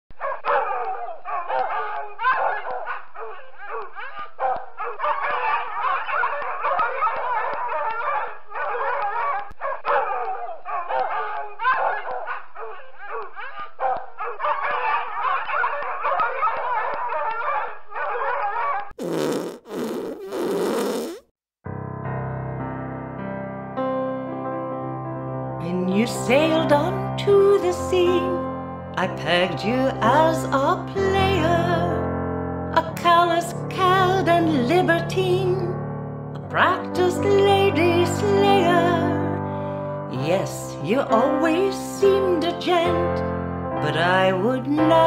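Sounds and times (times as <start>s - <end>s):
dogs barking and yelping: 0.2s - 18.9s
deep fart noises: 19.0s - 21.3s.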